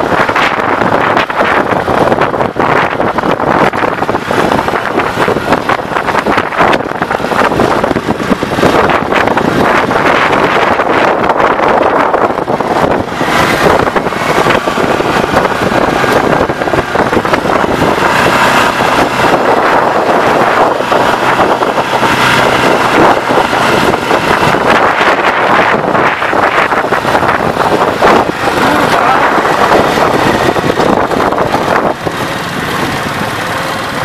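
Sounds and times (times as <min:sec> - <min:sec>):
buggy engine running: 0:00.0 - 0:34.0
wind noise on microphone: 0:00.0 - 0:34.0.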